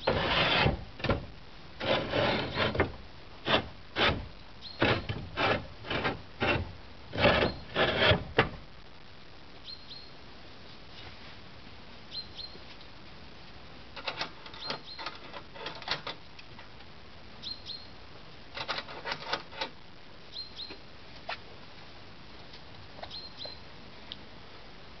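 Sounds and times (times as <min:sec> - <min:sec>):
small bird chirping: 0:04.6 - 0:04.8, 0:09.6 - 0:10.2, 0:12.1 - 0:12.6, 0:14.6 - 0:15.1, 0:17.4 - 0:18.0, 0:20.3 - 0:20.8, 0:23.0 - 0:23.7.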